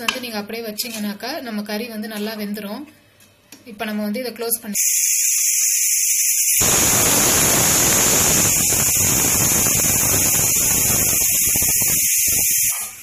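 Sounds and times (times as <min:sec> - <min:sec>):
pressure cooker steam hissing: 0:04.8 - 0:13.0.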